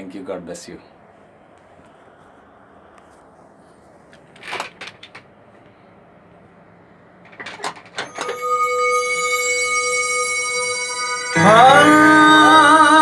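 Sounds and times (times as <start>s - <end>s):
electronic chord with shimmer: 8.1s - 13.0s.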